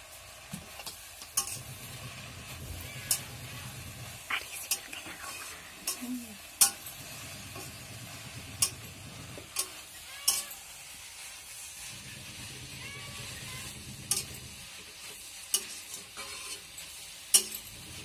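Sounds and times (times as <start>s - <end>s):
greens sizzling in a pan: 0.0s - 18.0s
spatula scraping metal pan: 6.6s - 18.0s.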